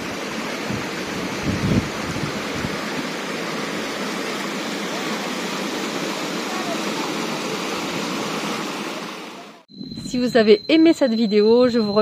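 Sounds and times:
waterfall spilling over rocks: 0:00.0 - 0:09.4
stream rushing: 0:00.0 - 0:09.6.

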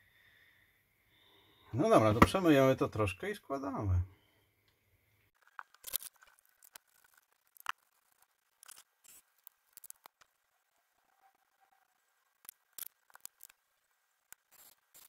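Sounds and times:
plastic parts clicking and rustling: 0:05.4 - 0:10.3, 0:12.4 - 0:13.6.

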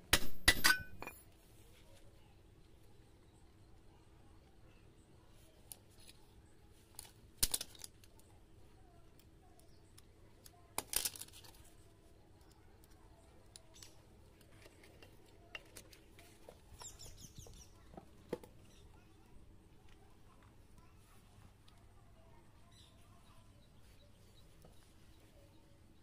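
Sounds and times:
metal tools and parts clinking: 0:00.1 - 0:01.3.

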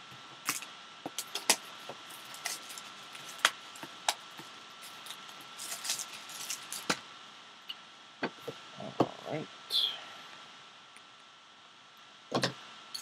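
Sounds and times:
plastic shrink wrap crinkling: 0:00.4 - 0:07.0.

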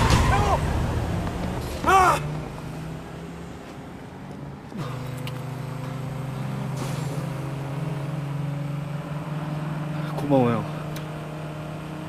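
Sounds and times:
car engine hum inside cabin: 0:00.0 - 0:12.0
road traffic noise: 0:00.0 - 0:12.0.

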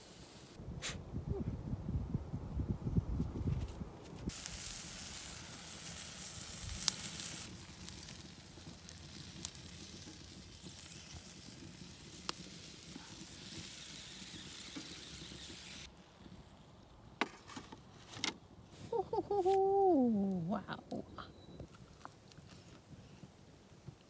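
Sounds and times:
sausages sizzling on a grill: 0:04.3 - 0:16.6.

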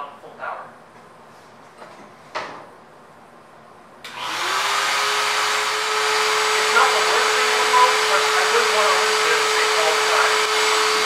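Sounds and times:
shop vacuum running: 0:04.0 - 0:11.0.

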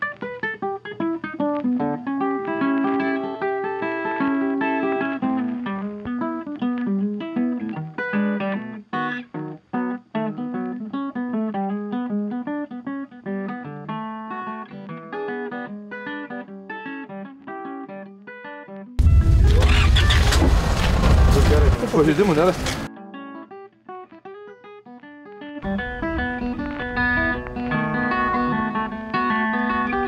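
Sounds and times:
guitar picking notes: 0:00.0 - 0:20.6, 0:22.6 - 0:30.0.

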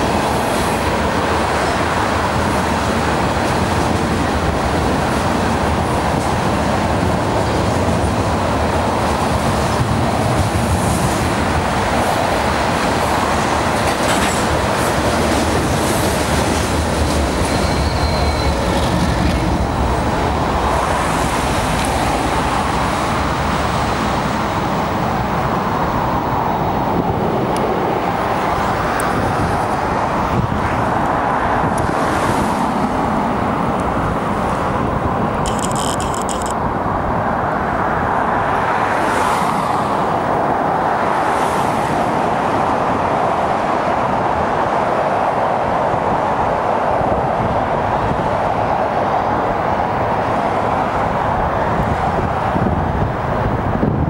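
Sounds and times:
locomotive noise: 0:00.0 - 0:31.9, 0:32.6 - 0:36.9
wheels rumbling on rail: 0:00.0 - 0:54.0.

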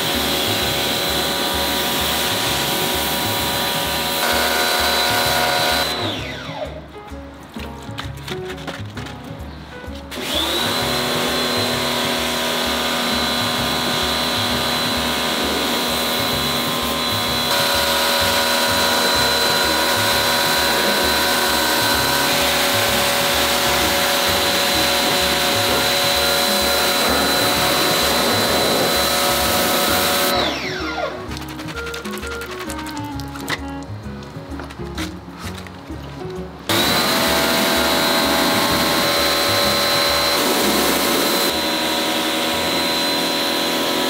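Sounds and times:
pressure washer motor whine: 0:00.0 - 0:06.8, 0:10.1 - 0:31.3, 0:36.7 - 0:44.0
background music with steady beat: 0:00.0 - 0:44.0
water jet hissing on plastic: 0:10.8 - 0:30.4.

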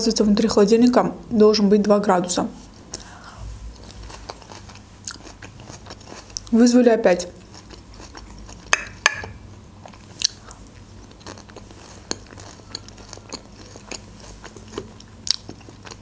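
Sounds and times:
chewing salad with wet crunching: 0:02.9 - 0:06.6, 0:07.3 - 0:16.0.

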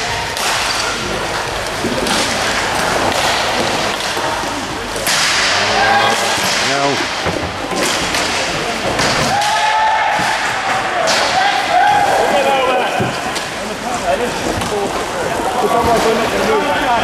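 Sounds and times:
hall noise: 0:00.0 - 0:17.0
hockey sticks slapping puck: 0:00.2 - 0:12.3
skate wheels rolling: 0:00.8 - 0:06.5.

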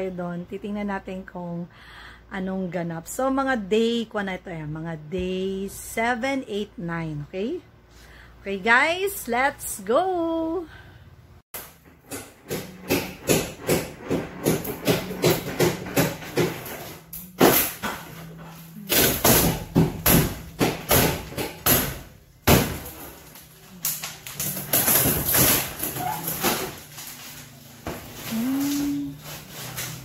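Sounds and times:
knocks on wooden boards: 0:12.0 - 0:18.0.

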